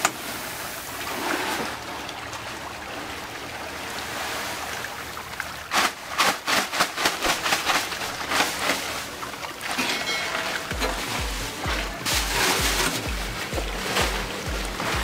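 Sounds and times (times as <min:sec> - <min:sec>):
watery rush: 0:00.0 - 0:15.0
plastic bag rustling in pellets: 0:05.7 - 0:15.0.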